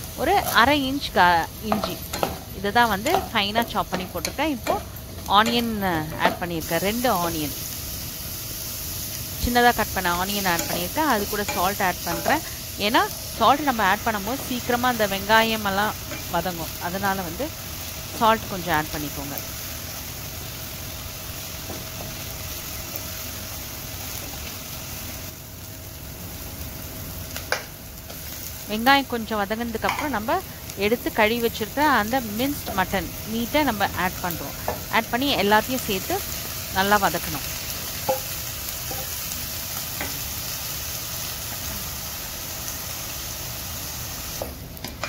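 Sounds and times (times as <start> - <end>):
onions sizzling in oil: 0.0 - 45.0.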